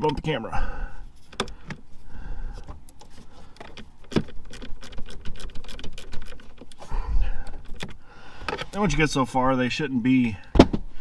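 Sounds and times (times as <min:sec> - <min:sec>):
dull thump: 0:10.5 - 0:10.9.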